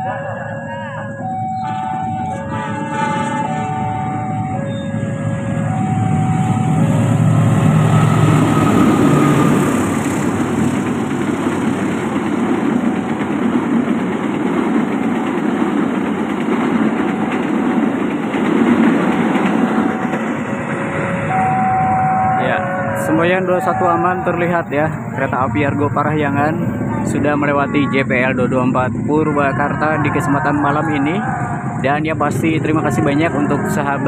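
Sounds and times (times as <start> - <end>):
diesel locomotive engine drone: 0.0 - 34.0
train wheels rushing on rails: 1.7 - 34.0
two-tone crossing bell: 20.7 - 24.1.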